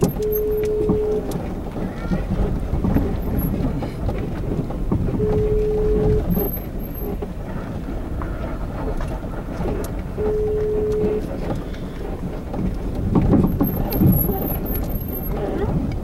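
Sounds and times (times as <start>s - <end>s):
vehicle rumble: 0.0s - 16.0s
telephone ringback tone: 0.1s - 1.3s, 5.2s - 6.6s, 10.2s - 11.2s.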